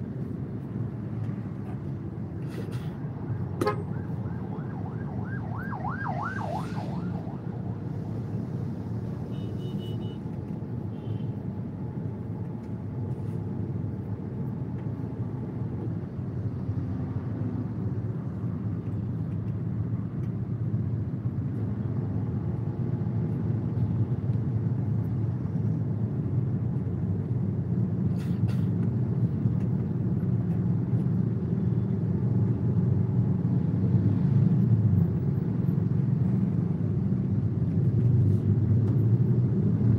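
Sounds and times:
idling engines rumble: 0.0 - 5.6, 7.3 - 33.4
fast-warbling electronic siren: 4.0 - 8.0.

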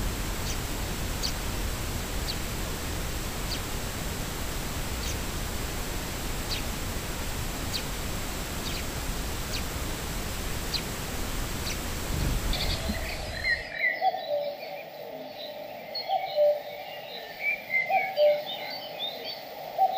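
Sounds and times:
steady hiss: 0.0 - 14.0
sparrows chirping: 0.4 - 1.5, 2.2 - 2.6, 3.4 - 3.8, 4.9 - 5.3, 6.3 - 6.8, 7.6 - 14.0
birdsong with trills: 8.6 - 9.8, 11.6 - 19.9.

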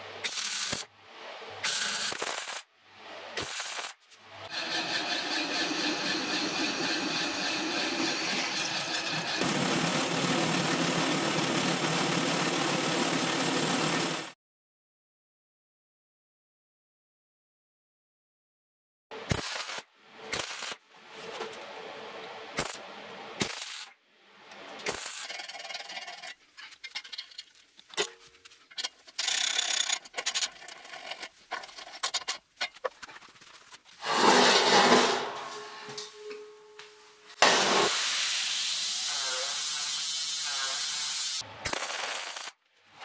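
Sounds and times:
tool scraping and rasping metal: 4.4 - 9.6, 25.0 - 33.2, 33.9 - 36.9.

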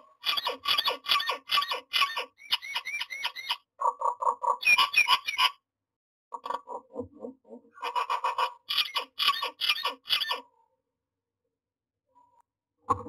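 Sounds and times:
bird calling repeated notes: 0.2 - 3.7.

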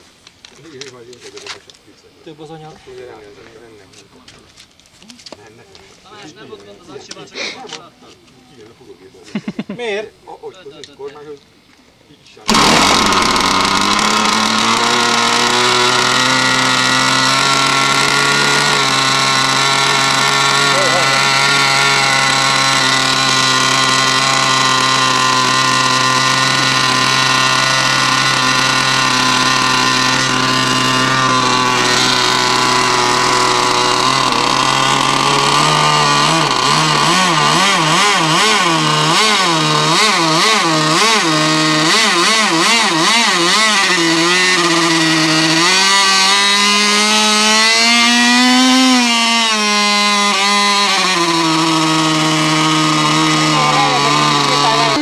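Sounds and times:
model jet engine running: 12.5 - 55.0.

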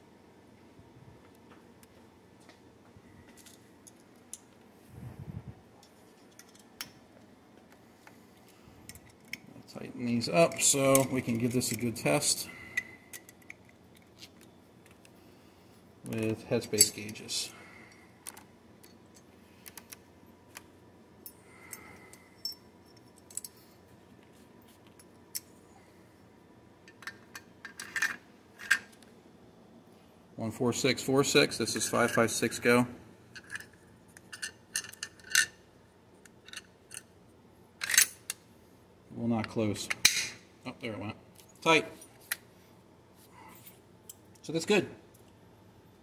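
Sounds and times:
small metal parts clicking: 5.8 - 6.9, 33.4 - 35.5, 37.8 - 38.4
small tools clicking and tapping: 5.8 - 7.0.

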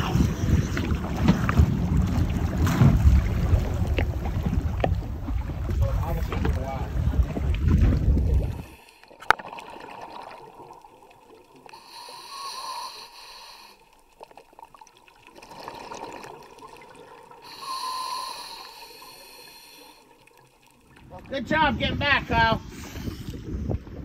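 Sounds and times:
wind noise: 0.0 - 8.8, 21.3 - 24.0
exhaled bubbles underwater: 0.0 - 13.1, 14.0 - 21.2
diver breathing through regulator: 8.3 - 9.2, 11.7 - 14.1, 17.4 - 20.2, 22.6 - 23.8.

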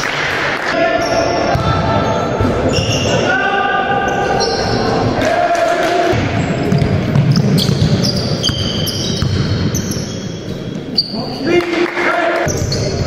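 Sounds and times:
sneakers squeaking: 1.0 - 3.4, 4.0 - 5.2, 6.1 - 11.5, 12.4 - 13.0
basketball bouncing on hardwood: 6.7 - 9.6.

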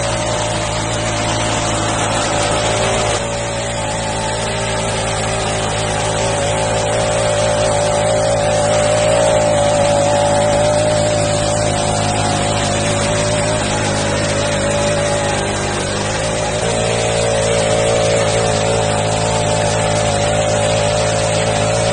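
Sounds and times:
small petrol engine running: 0.0 - 21.9.

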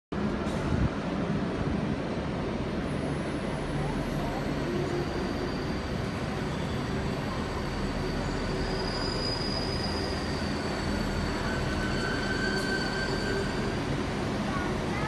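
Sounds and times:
train engine low rumble: 0.1 - 15.0
lower squeal: 4.3 - 14.0
high metallic squeal: 5.0 - 5.9, 6.5 - 13.8.

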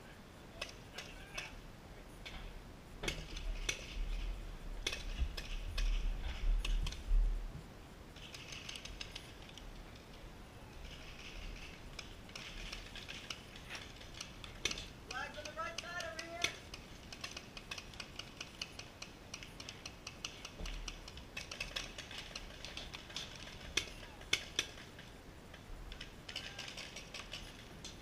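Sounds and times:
wind rumble on microphone: 3.9 - 7.7.

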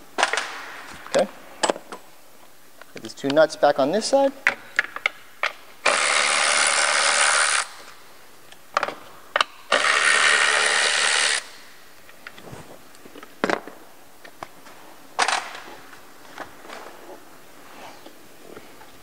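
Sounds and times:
cordless electric ratchet running: 5.8 - 7.7, 9.7 - 11.5.

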